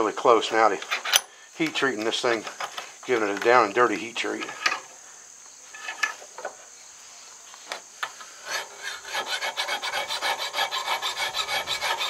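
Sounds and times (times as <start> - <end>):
hand file scraping steel: 8.4 - 12.0.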